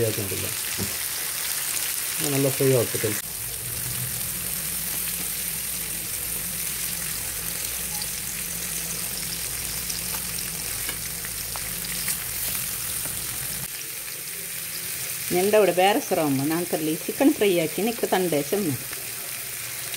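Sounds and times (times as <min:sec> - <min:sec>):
chicken sizzling in oil: 0:00.0 - 0:19.9.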